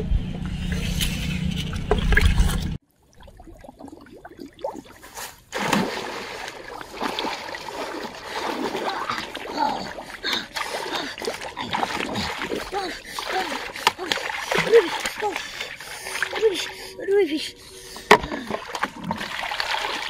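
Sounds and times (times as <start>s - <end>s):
low rumble: 0.0s - 2.8s
water sloshing and splashing: 0.4s - 20.0s.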